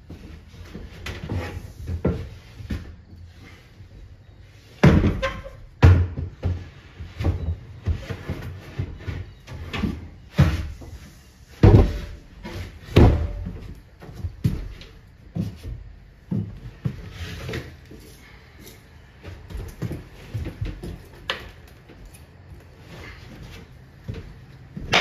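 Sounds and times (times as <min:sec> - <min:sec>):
cabinet thumping and knocking: 0:04.8 - 0:06.6, 0:11.6 - 0:12.2.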